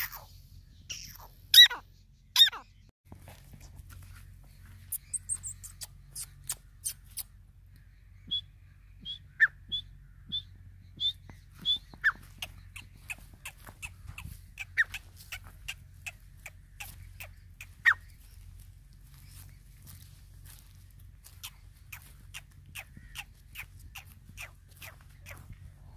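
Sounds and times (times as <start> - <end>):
bird chirps: 0.0 - 2.9, 4.1 - 25.9.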